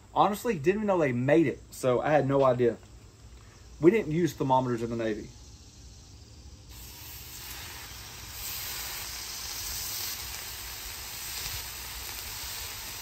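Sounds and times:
bacon sizzling on a griddle: 6.7s - 13.0s.

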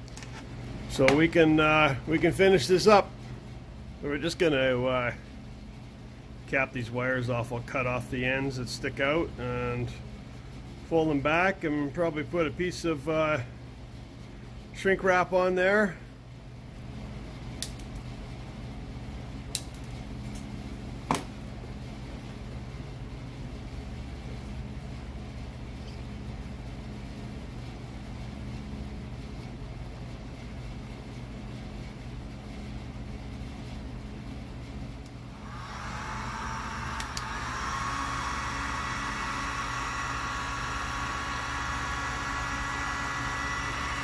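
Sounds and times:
low mechanical hum: 0.0s - 44.0s
heat gun blowing: 35.3s - 44.0s
sharp clicks: 37.0s - 37.3s.

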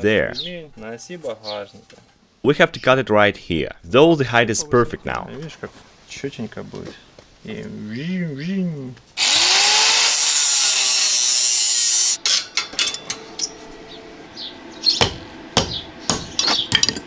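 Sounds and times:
angle grinder cutting steel: 9.2s - 12.5s
sharp metal knocks: 15.0s - 17.0s.

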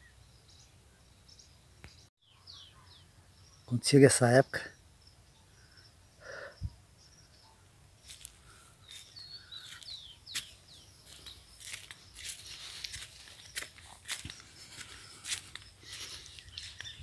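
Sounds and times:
bird chirping: 0.0s - 17.0s
footsteps crunching on dry leaves: 8.0s - 17.0s.

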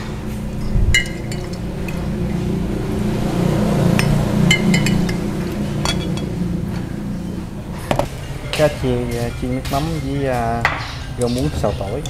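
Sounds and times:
steady low hum: 0.0s - 12.0s
ceramic tableware clinking: 1.0s - 1.6s, 4.0s - 5.2s, 5.8s - 6.4s.

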